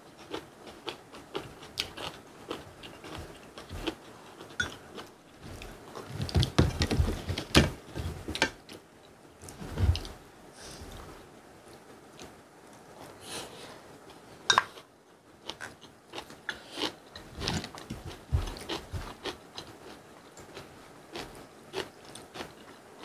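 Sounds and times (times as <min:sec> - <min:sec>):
chewing and biting food: 0:00.2 - 0:06.7, 0:15.4 - 0:22.8.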